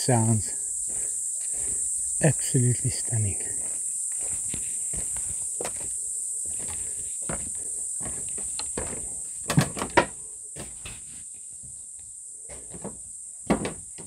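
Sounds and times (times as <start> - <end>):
insects chorus: 0.0 - 14.0
footsteps on wooden planks: 0.5 - 2.2, 3.4 - 11.8, 12.5 - 14.0.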